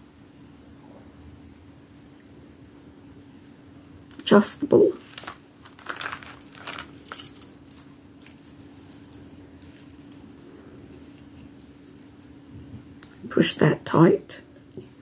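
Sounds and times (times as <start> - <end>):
faint steady hum: 0.0 - 15.0
beading wire rustling: 4.9 - 13.2, 14.5 - 15.0.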